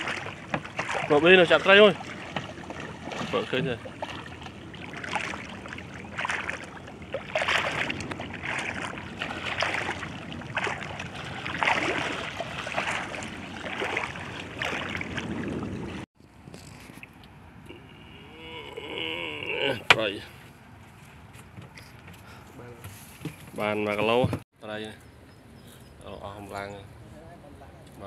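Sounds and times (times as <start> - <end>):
shallow water splashing: 0.0 - 16.1.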